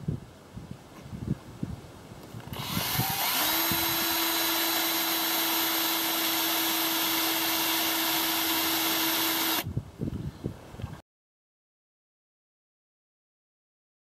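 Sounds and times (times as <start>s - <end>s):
cordless drill whining: 2.4s - 9.7s.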